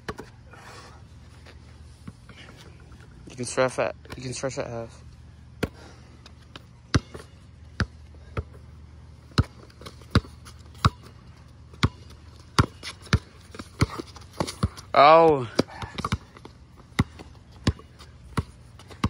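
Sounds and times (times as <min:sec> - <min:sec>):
steady low hum: 0:00.0 - 0:19.0
basketball bouncing on concrete: 0:05.6 - 0:08.6, 0:09.2 - 0:19.0.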